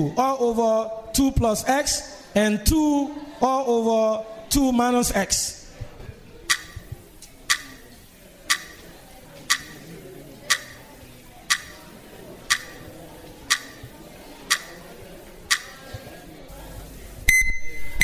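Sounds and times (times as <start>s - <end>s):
countdown timer ticking: 6.5s - 8.9s, 9.5s - 9.9s, 10.5s - 10.8s, 11.5s - 11.8s, 12.5s - 12.8s, 13.5s - 13.9s, 14.5s - 14.8s, 15.5s - 15.7s.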